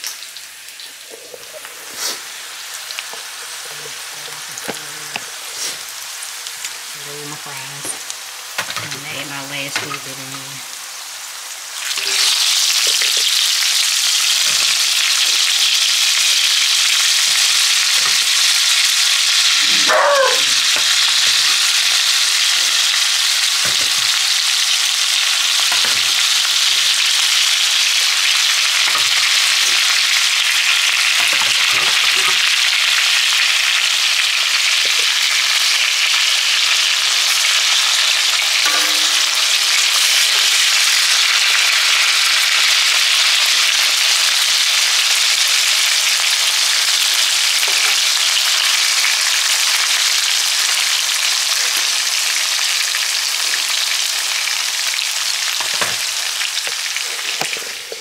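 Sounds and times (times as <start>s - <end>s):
fries sizzling in hot oil: 0.0s - 58.0s
metal tongs knocking in pan: 38.6s - 39.5s.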